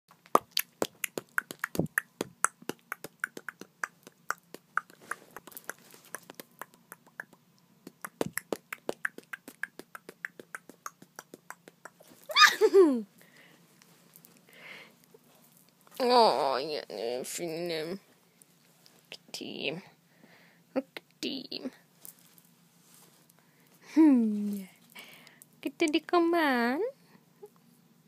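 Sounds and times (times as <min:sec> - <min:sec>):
short falling cry: 0:12.3 - 0:12.8.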